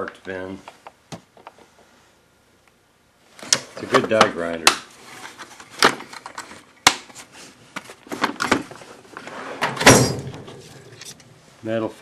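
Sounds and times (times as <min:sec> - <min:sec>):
metal tool chest clicks and knocks: 0:09.6 - 0:10.6.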